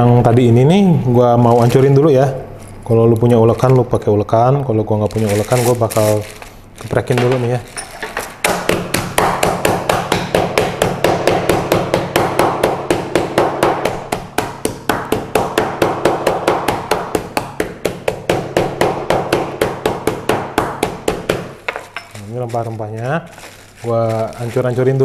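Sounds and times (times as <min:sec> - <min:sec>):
mallet pounding spices: 0:07.2 - 0:25.0.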